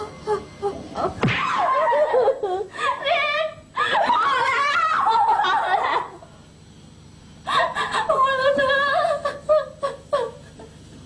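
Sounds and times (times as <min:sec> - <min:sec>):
woman crying and sobbing: 0:01.7 - 0:06.0, 0:07.5 - 0:10.8.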